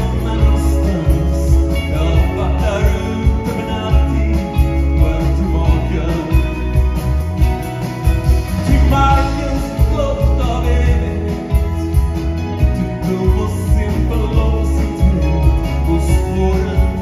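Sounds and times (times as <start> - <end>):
live rock band playing: 0.0 - 17.0
person singing: 0.0 - 17.0.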